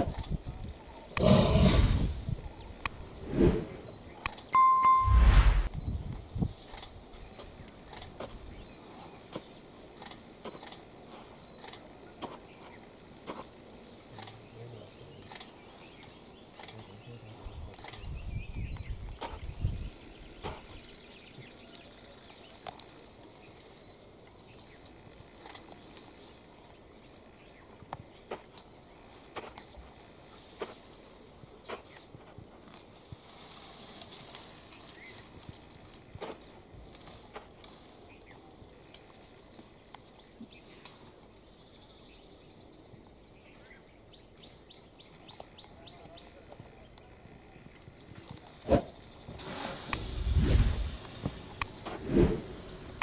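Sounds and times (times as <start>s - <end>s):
faint outdoor ambience: 0.0s - 53.0s
small birds chirping and trilling: 10.5s - 22.7s.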